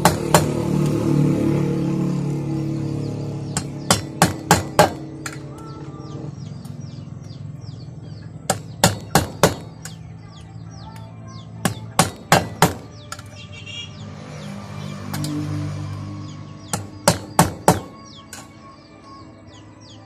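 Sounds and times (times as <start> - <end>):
hammer striking workpiece: 0.0 - 0.6, 3.5 - 5.5, 8.5 - 10.0, 11.6 - 13.3, 16.7 - 18.5.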